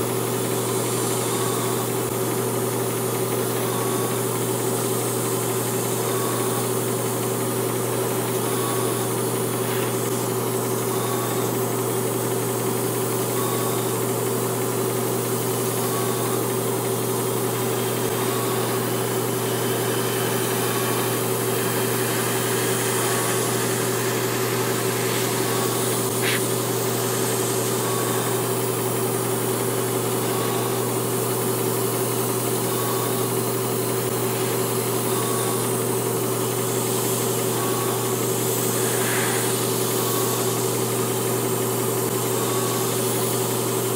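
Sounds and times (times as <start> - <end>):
compressor humming: 0.0 - 43.9
airbrush spraying hiss: 0.2 - 2.1, 7.8 - 13.2, 16.4 - 31.3, 32.0 - 43.8.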